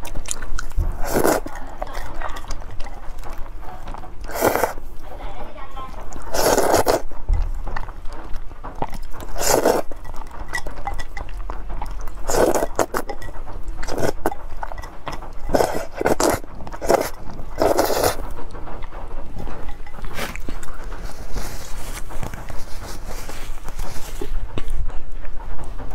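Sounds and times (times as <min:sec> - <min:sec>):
wet chewing: 0:00.0 - 0:25.9
loud noodle slurps: 0:00.9 - 0:02.1, 0:04.3 - 0:04.8, 0:06.3 - 0:07.1, 0:09.2 - 0:09.9, 0:12.3 - 0:13.1, 0:15.5 - 0:18.3.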